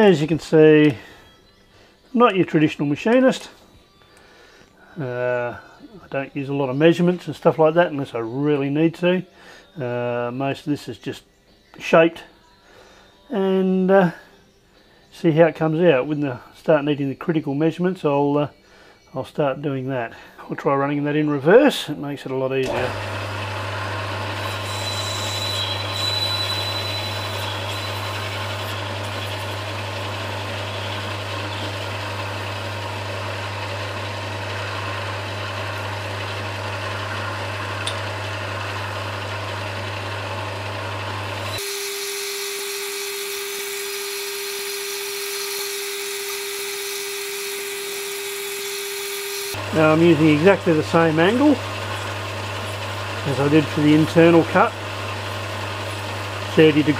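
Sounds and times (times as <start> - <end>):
lathe tool cutting metal: 22.6 - 56.9
metal lathe motor hum: 22.6 - 56.9.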